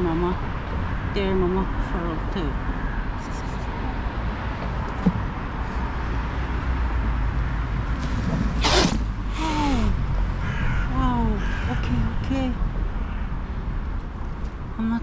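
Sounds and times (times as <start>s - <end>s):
harsh animal calls falling in pitch: 10.4s - 11.9s.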